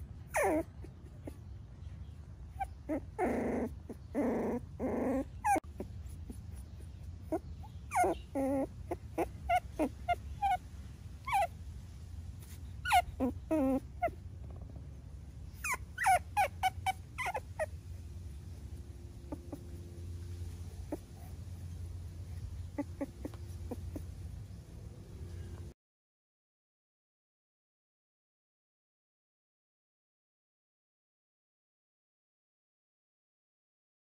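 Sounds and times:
puppy crying: 0.0 - 11.6, 12.4 - 14.4, 15.5 - 18.0, 18.6 - 19.9, 20.5 - 24.5
puppy whimpering: 0.0 - 11.6, 12.4 - 14.7, 15.5 - 17.9, 18.5 - 24.5.

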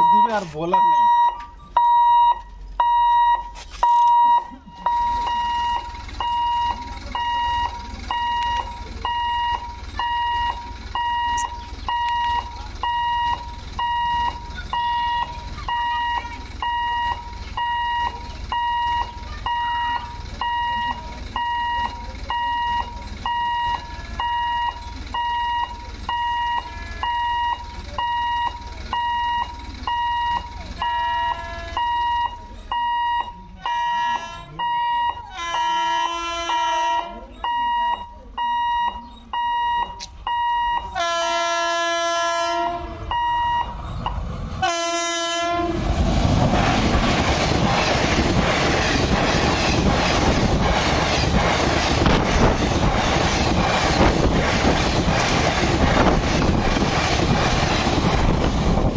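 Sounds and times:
level crossing alarm beeping: 0.0 - 41.5, 42.6 - 45.6
other alarm tones: 0.0 - 45.8
low rumble: 45.5 - 58.9.

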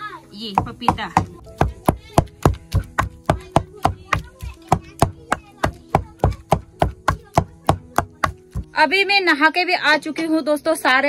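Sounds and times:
wooden pestle pounding in a wok: 0.4 - 8.8.

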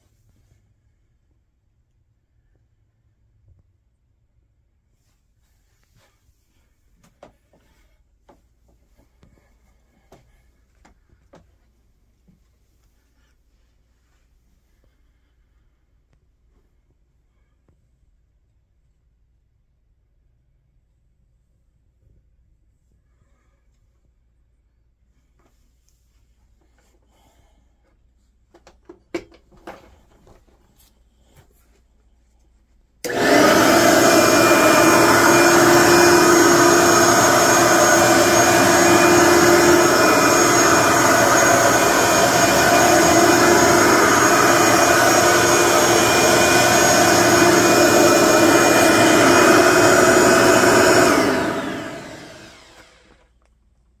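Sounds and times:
vacuum cleaner motor whine: 33.0 - 53.3.

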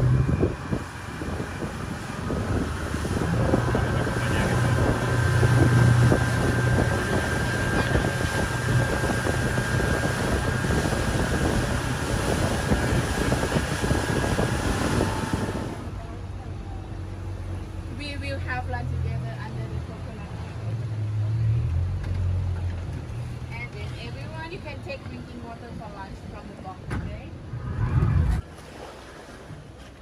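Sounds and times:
wind on microphone: 0.0 - 15.9, 26.3 - 28.5
motorboat engine running: 0.0 - 30.0
water rushing along hull: 0.0 - 30.0.

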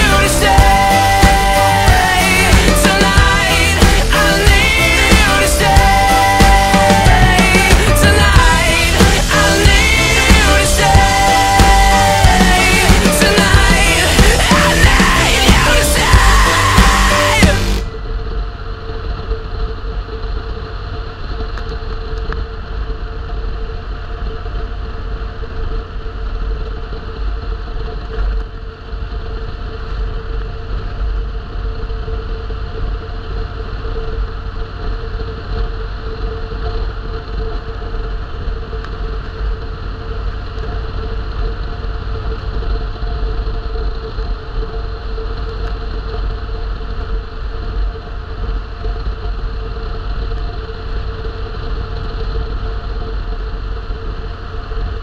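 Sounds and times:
vehicle engine running: 0.0 - 25.6.

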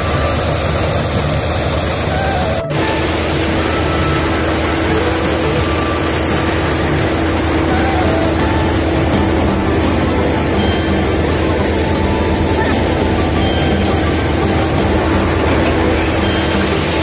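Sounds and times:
tractor diesel engine: 0.0 - 17.0
wheat thresher running: 0.0 - 17.0.

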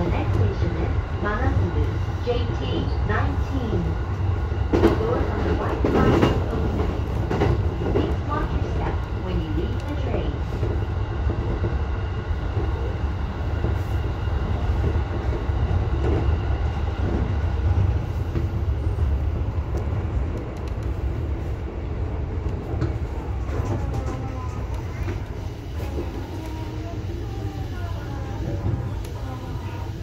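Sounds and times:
train wheels rumbling on rail: 0.0 - 30.0
faint train whine: 7.9 - 30.0.

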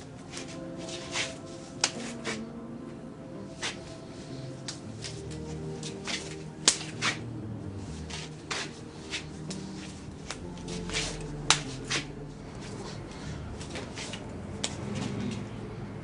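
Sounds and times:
hands and forearms slapping: 1.1 - 2.4, 4.6 - 7.2, 10.3 - 12.1.

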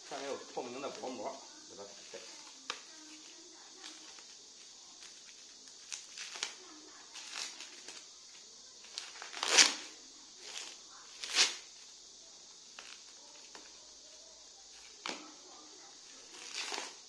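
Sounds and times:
plastic film tearing and crinkling: 5.0 - 8.1, 8.8 - 11.7, 16.3 - 17.0.

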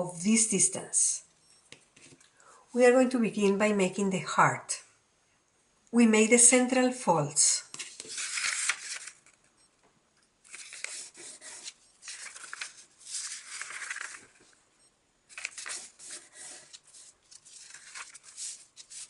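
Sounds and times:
paper rustling and scraping: 7.7 - 9.4, 10.5 - 14.6, 15.3 - 19.0.

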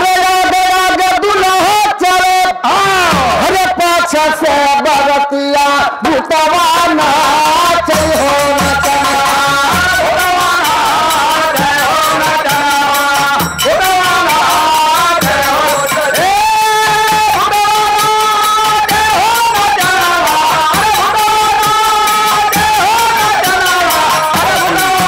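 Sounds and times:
kettle drums beaten with sticks: 2.8 - 3.9, 6.7 - 25.0
men singing folk song: 5.7 - 25.0.

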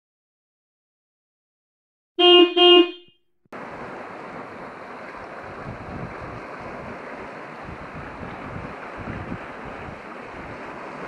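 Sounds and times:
brief pitched tone: 2.2 - 3.1
surf washing on rocky shore: 3.6 - 11.0
wind gusts on microphone: 3.6 - 11.0.

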